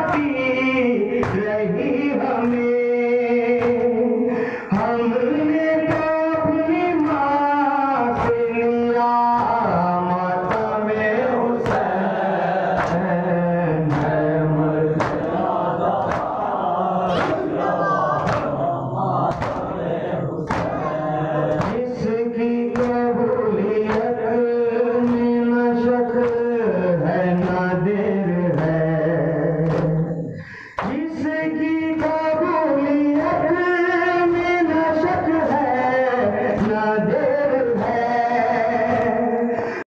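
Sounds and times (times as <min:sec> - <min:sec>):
person chanting lament: 0:00.0 - 0:39.9
chest-beating slaps: 0:01.2 - 0:02.6, 0:03.4 - 0:05.0, 0:08.1 - 0:08.6, 0:10.4 - 0:13.2, 0:13.8 - 0:23.1, 0:23.8 - 0:25.4, 0:26.1 - 0:26.6, 0:29.6 - 0:31.1, 0:38.8 - 0:39.3.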